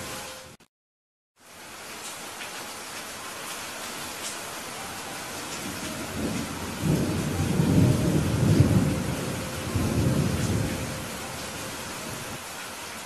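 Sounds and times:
heavy rain: 0:00.0 - 0:00.6, 0:01.4 - 0:13.0
thunder rumbling: 0:05.3 - 0:12.4.

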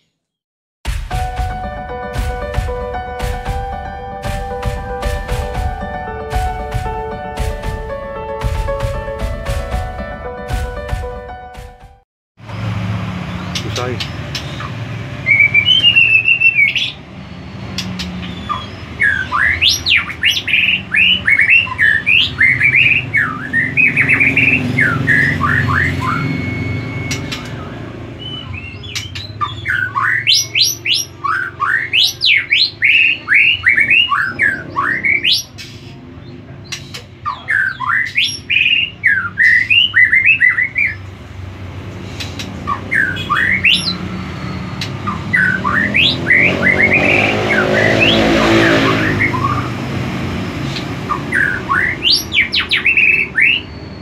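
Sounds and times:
songbird whistling song: 0:14.0 - 0:36.0, 0:36.6 - 0:41.0, 0:42.2 - 0:49.7, 0:50.7 - 0:54.0.

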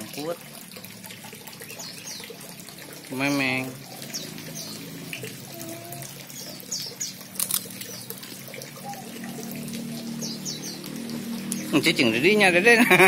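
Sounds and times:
water trickling in a pond: 0:00.0 - 0:13.0
small birds chirping: 0:01.5 - 0:12.6
sharp clicks: 0:07.4 - 0:07.9.

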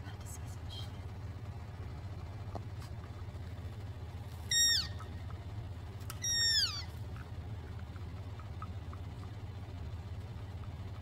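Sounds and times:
elk squeals: 0:04.4 - 0:05.2, 0:06.1 - 0:07.0.

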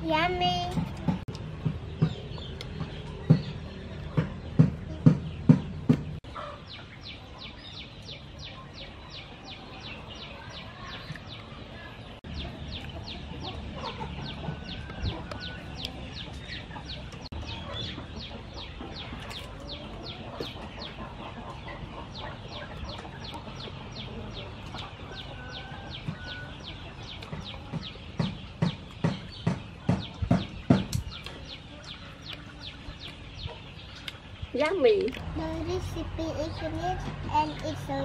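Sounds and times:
chickens clucking: 0:00.0 - 0:38.0
sharp knocks: 0:00.8 - 0:06.2, 0:27.4 - 0:31.1.

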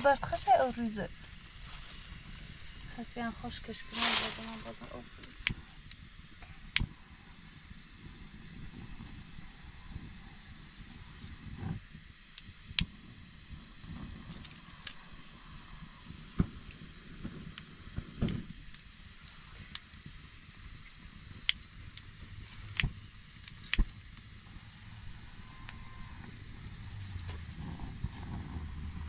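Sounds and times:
faint steady hiss: 0:00.0 - 0:29.0
dry leaves rustling: 0:01.5 - 0:05.0
lighter clicks: 0:05.2 - 0:06.9, 0:12.3 - 0:13.0, 0:20.9 - 0:24.3.

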